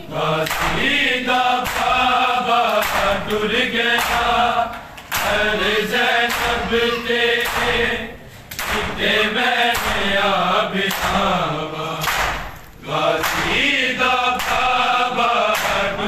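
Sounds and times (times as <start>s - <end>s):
men singing lament in chorus: 0.0s - 16.0s
hands slapping bare chests: 1.6s - 2.0s, 2.6s - 3.1s, 7.4s - 7.7s, 8.5s - 8.9s.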